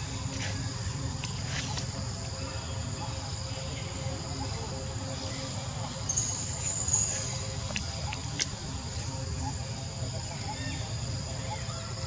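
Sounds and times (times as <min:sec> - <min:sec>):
loud high insect trill: 0:00.0 - 0:07.6
low steady rumble: 0:00.0 - 0:10.4
insects chirring: 0:00.0 - 0:12.0.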